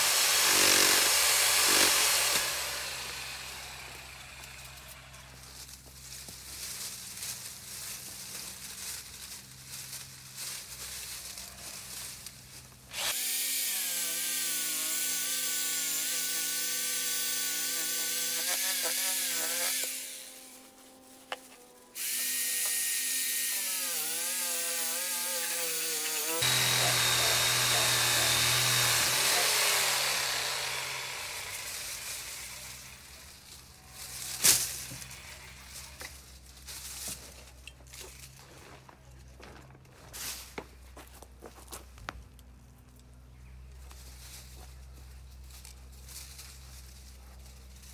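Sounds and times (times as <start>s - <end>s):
power tool motor whining: 0.0s - 5.8s, 12.9s - 20.6s, 21.9s - 36.2s.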